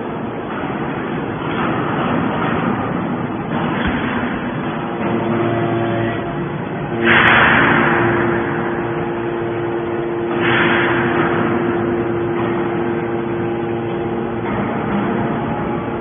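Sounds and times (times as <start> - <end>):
hydraulic baler motor hum: 0.0 - 16.0
rushing surge: 6.9 - 14.2.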